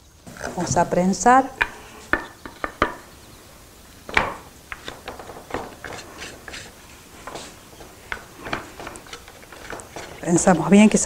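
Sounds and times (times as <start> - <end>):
wooden press knocking: 1.6 - 3.0
clicks and rubbing: 4.1 - 11.0.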